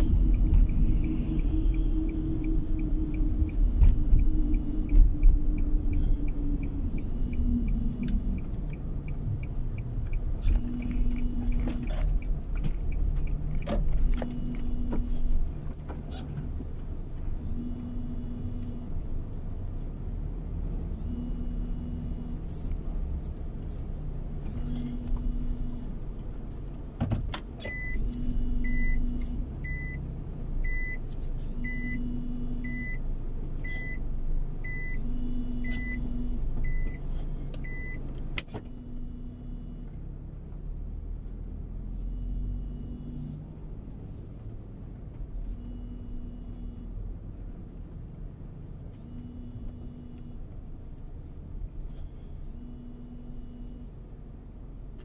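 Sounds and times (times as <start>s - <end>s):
reverse warning beeps: 0.0s - 15.8s, 27.6s - 38.1s, 41.9s - 43.4s, 45.5s - 47.0s, 52.5s - 54.0s
faint indicator ticking: 0.0s - 20.0s
car rolling low rumble: 0.0s - 55.0s.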